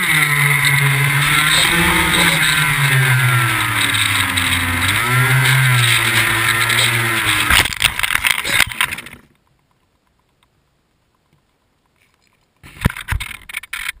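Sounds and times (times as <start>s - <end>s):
plane scraping on wood chips: 0.0s - 7.8s
electric motor and propeller whining: 0.0s - 9.3s
footsteps on wood chips: 0.6s - 7.5s.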